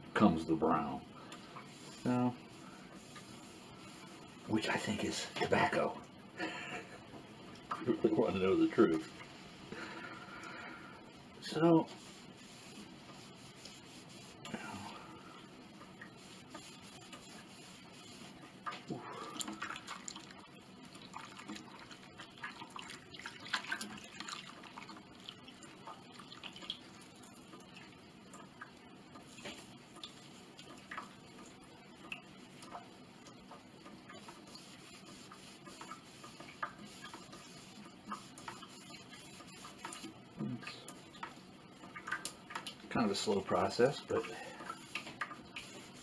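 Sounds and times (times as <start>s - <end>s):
wet rag rubbing wood: 1.5s - 5.2s, 11.5s - 15.0s, 15.8s - 20.2s, 29.2s - 30.5s, 34.2s - 40.1s, 44.6s - 46.0s
water drips and splashes: 16.6s - 43.0s.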